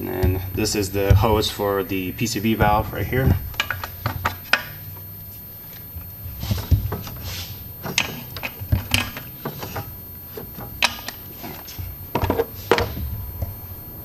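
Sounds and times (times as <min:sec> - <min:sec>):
hand tools clicking and knocking: 0:00.0 - 0:05.1, 0:06.3 - 0:13.6.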